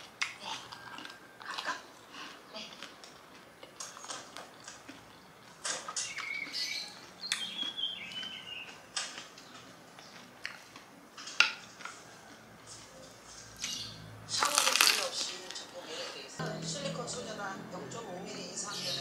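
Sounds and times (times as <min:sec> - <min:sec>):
crunchy chewing: 0:00.0 - 0:15.8
faint high steady tones: 0:16.4 - 0:18.7.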